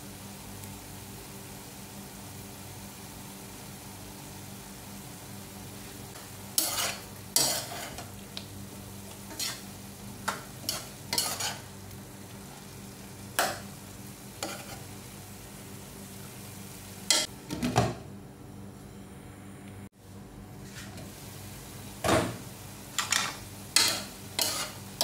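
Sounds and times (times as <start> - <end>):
food sizzling: 0.0 - 17.3, 20.6 - 25.0
metal spoon scraping pan: 6.6 - 8.1, 9.3 - 9.6, 10.6 - 11.7, 14.4 - 14.9, 23.0 - 24.8.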